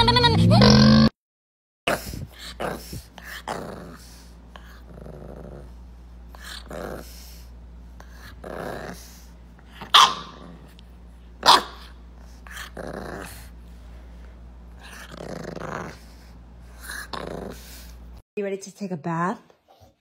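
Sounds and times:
puppy growling: 0:01.9 - 0:13.6, 0:14.7 - 0:18.2
puppy barking: 0:09.8 - 0:10.4, 0:11.4 - 0:12.0.

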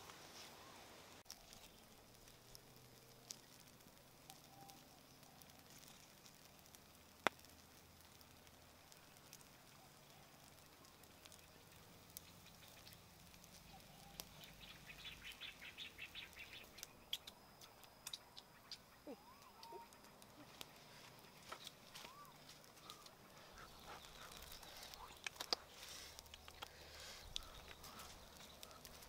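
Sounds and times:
fire crackling: 0:00.0 - 0:29.0
fire popping: 0:00.0 - 0:29.0
ticking: 0:01.3 - 0:29.0.

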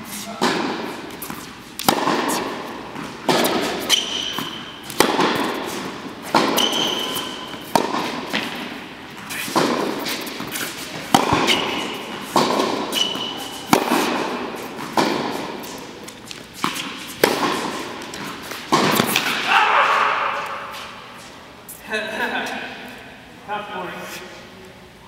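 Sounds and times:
racket striking tennis ball: 0:00.2 - 0:21.2
ball bouncing on court: 0:00.4 - 0:08.8, 0:09.5 - 0:15.6, 0:16.2 - 0:19.5.

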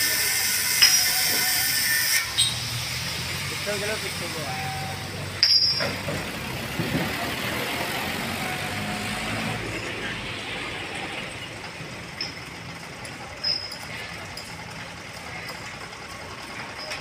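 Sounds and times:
diesel engine running: 0:00.0 - 0:17.0
metal clank ringing: 0:04.6 - 0:06.3, 0:13.4 - 0:14.6.

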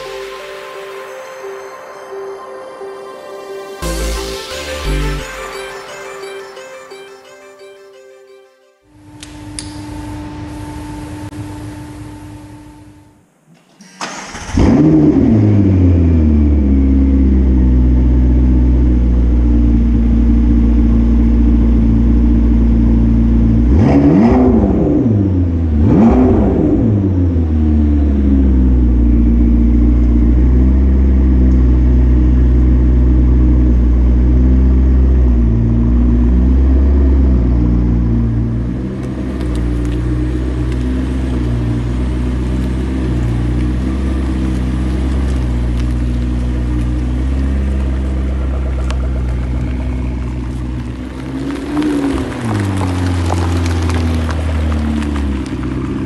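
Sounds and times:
car engine idling: 0:14.0 - 0:56.0
engine revving: 0:14.0 - 0:56.0.

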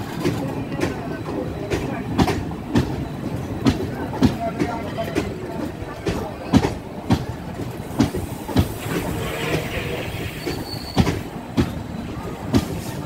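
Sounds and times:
train wheels rumbling: 0:00.0 - 0:13.0
wheels clacking on rail joints: 0:00.0 - 0:13.0
short high squeal: 0:08.8 - 0:11.1.

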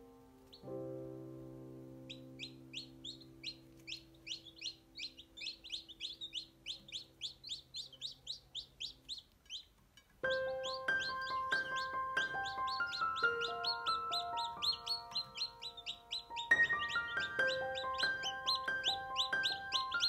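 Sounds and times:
chicks peeping: 0:02.0 - 0:20.0
held music chord: 0:10.3 - 0:20.0
chime-like music: 0:16.5 - 0:20.0.

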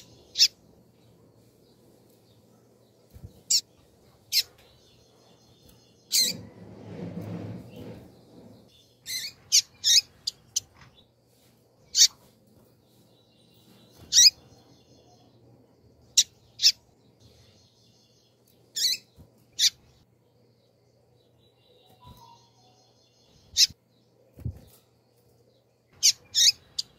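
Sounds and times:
bird chip calls: 0:00.0 - 0:00.6, 0:09.0 - 0:10.7, 0:14.0 - 0:14.5, 0:16.1 - 0:16.9, 0:18.7 - 0:19.8, 0:23.5 - 0:23.8, 0:26.0 - 0:26.9.

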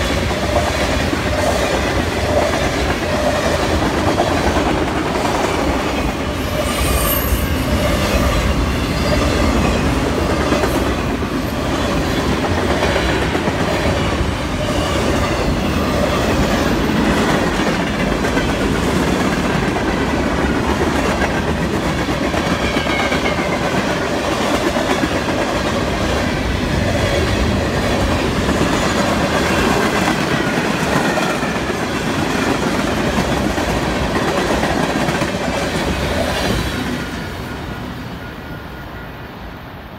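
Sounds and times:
freight train rumbling: 0:00.0 - 0:39.9.

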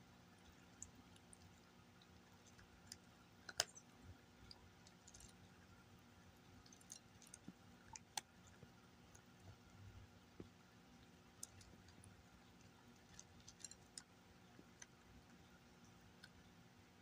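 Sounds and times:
cat crunching dry kibble: 0:11.4 - 0:15.0.

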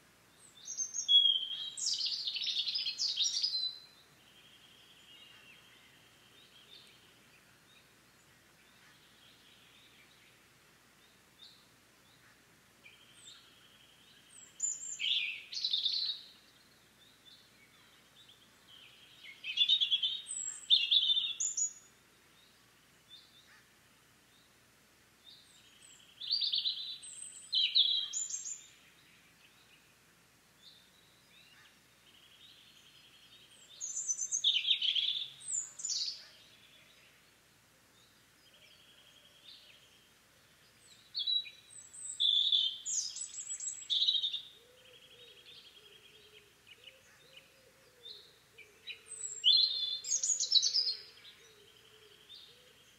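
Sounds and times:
robin singing: 0:00.3 - 0:23.6, 0:25.2 - 0:30.0, 0:30.6 - 0:52.9.

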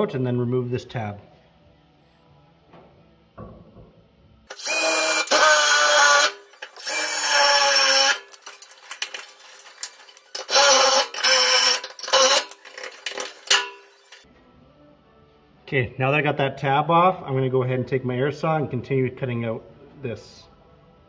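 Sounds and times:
cordless drill drilling steel: 0:04.5 - 0:14.2.

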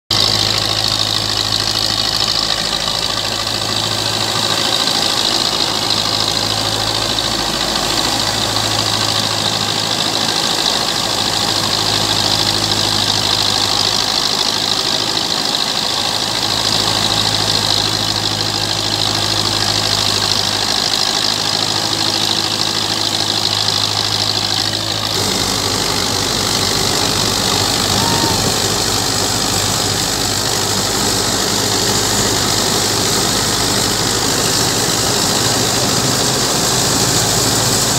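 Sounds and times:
tractor diesel engine running: 0:00.0 - 0:37.9
threshing machine high-pitched whir: 0:00.1 - 0:37.9.

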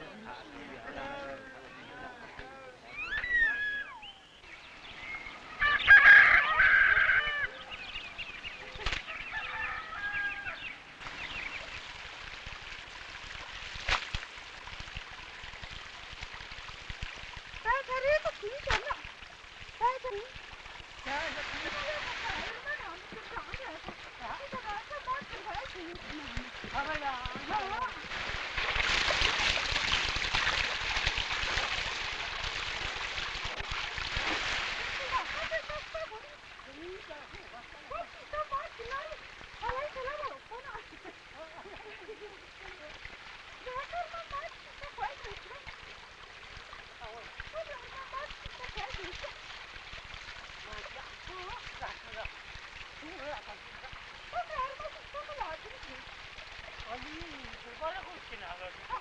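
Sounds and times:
rooster crowing: 0:05.6 - 0:07.7, 0:09.1 - 0:10.8.

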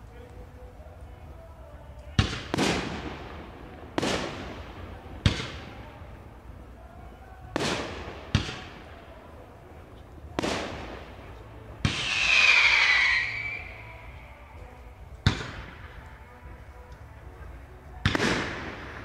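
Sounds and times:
fireworks bangs echoing: 0:02.2 - 0:06.0, 0:07.5 - 0:09.0, 0:10.3 - 0:13.8, 0:15.2 - 0:15.9, 0:18.0 - 0:19.0.

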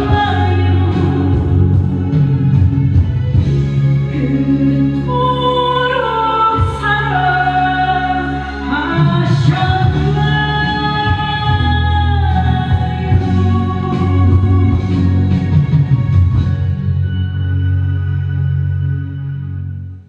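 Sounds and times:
woman singing into a microphone: 0:00.0 - 0:02.7, 0:04.1 - 0:15.6
backing music: 0:00.0 - 0:20.0.

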